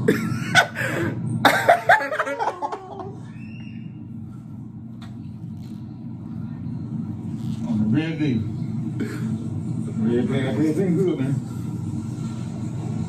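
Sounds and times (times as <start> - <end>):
man laughing in bursts: 0.0 - 3.2
low background hum: 0.0 - 13.0.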